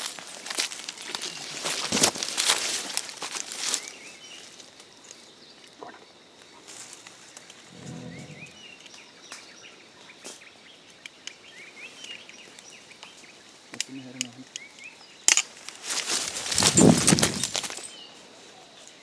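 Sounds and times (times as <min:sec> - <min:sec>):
leaves rustling and crackling: 0:00.0 - 0:05.3, 0:15.4 - 0:19.0.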